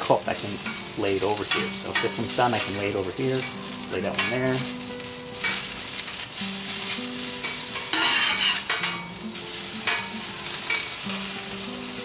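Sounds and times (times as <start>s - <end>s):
food sizzling on a griddle: 0.0s - 12.0s
metal tongs scraping and tapping: 5.4s - 5.6s, 7.4s - 9.2s, 9.8s - 10.1s, 10.7s - 11.2s.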